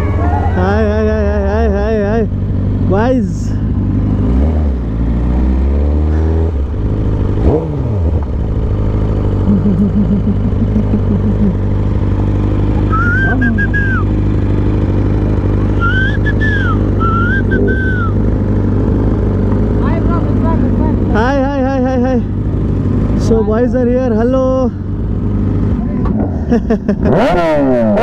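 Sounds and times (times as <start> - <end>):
motorbike engine droning: 0.0 - 28.0
high wavering whistle-like tone: 12.8 - 14.1, 15.7 - 18.2.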